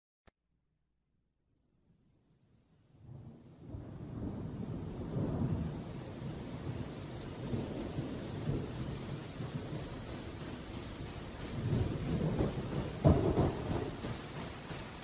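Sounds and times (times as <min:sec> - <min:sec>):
low rolling thunder: 0:03.0 - 0:15.0
rain hissing: 0:03.2 - 0:15.0.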